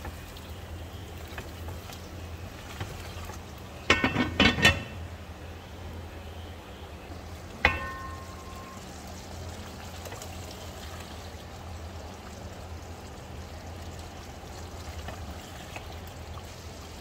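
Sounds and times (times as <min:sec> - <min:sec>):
pot lid clattering: 0:03.9 - 0:05.1, 0:07.6 - 0:08.8.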